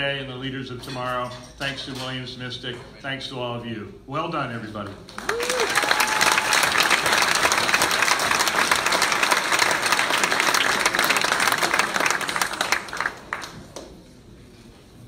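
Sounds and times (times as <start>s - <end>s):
large audience applauding: 5.1s - 13.9s.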